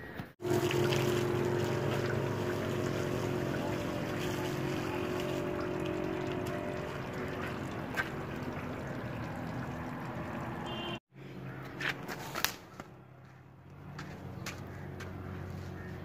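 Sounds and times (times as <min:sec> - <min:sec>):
machine hum: 0:00.4 - 0:11.0
running water: 0:00.4 - 0:11.0.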